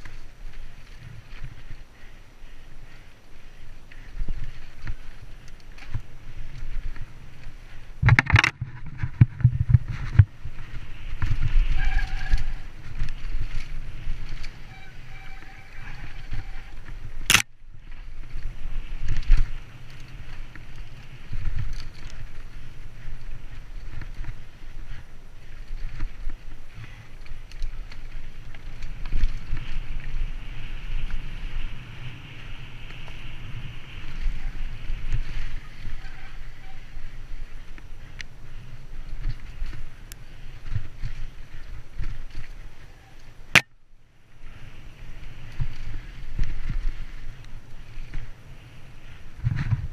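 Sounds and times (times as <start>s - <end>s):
bike knocking and rattling: 0.0s - 43.8s, 44.4s - 49.9s
wind and tyres on dirt: 0.0s - 49.9s
short high squeal: 11.7s - 12.6s, 14.7s - 16.8s.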